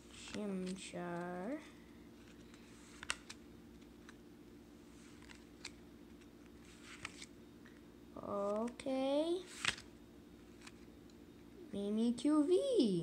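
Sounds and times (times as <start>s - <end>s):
low steady hum: 0.0s - 13.0s
cards clicking as flipped: 2.2s - 4.2s, 5.1s - 7.3s, 9.5s - 9.9s, 10.5s - 10.9s.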